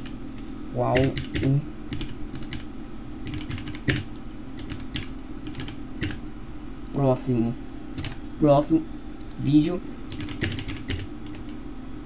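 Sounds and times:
keyboard typing: 0.8s - 6.2s, 8.0s - 8.2s, 10.1s - 11.6s.

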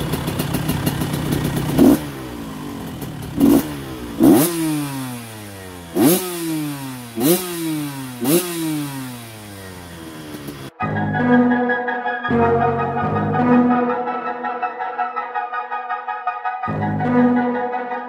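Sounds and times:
two-stroke engine revving: 0.0s - 10.8s.

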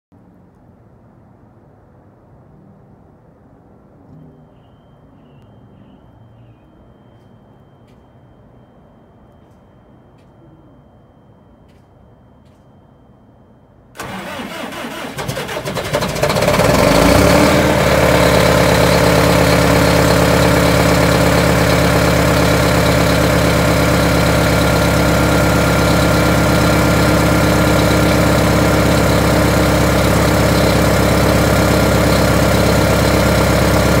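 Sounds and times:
bus engine idling: 14.0s - 34.0s.

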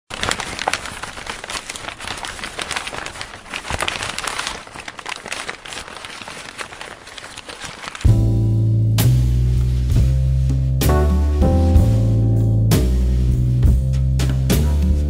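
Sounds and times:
dense crinkling crackling: 0.1s - 12.1s.

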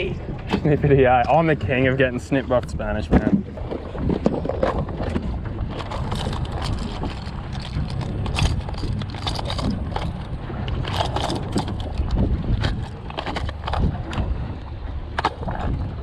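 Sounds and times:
low rumble of wind and water: 0.0s - 16.0s
fishing lures rattling: 5.8s - 14.2s.

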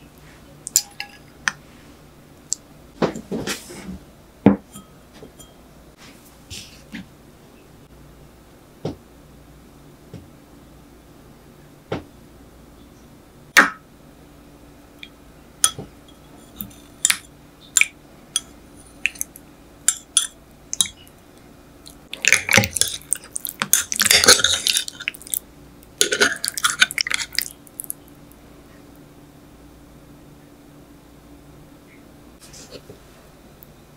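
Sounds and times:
wet stirring: 15.6s - 21.1s, 21.8s - 28.1s.

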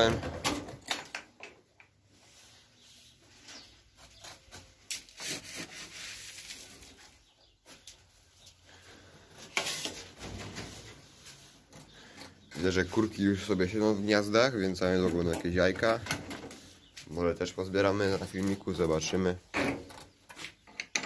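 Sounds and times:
knocks and rattles of hutch: 0.0s - 2.0s, 14.8s - 16.7s, 18.8s - 21.0s.

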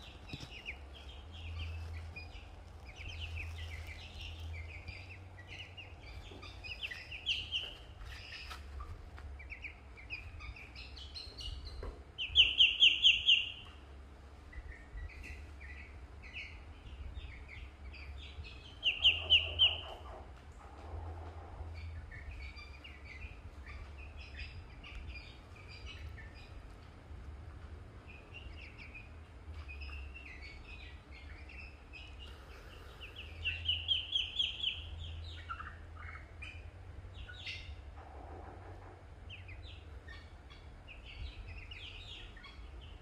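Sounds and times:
ducklings peeping: 0.0s - 43.0s.

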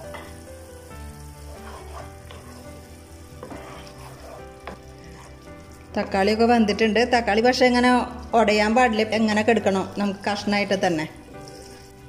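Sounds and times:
spoon scraping a pan: 0.0s - 0.5s, 1.1s - 5.9s, 10.2s - 12.0s
curry sizzling in a pan: 0.0s - 12.0s
soft background music: 0.0s - 12.0s.

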